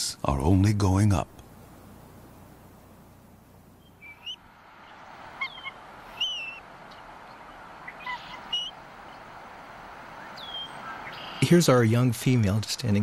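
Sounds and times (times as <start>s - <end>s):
soft steady hiss: 0.0s - 13.0s
eagle squeaky chirps: 3.8s - 4.4s, 5.3s - 9.3s, 10.2s - 11.5s.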